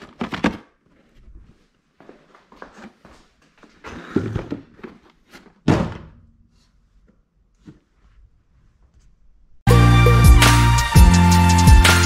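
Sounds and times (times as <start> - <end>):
loud thunk: 5.6 - 6.2.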